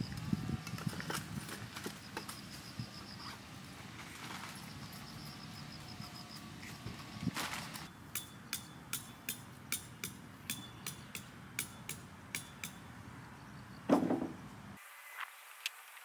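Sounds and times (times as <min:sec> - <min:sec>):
hammer clinking on metal pegs: 0:08.1 - 0:12.9
dull knock: 0:13.9 - 0:14.4.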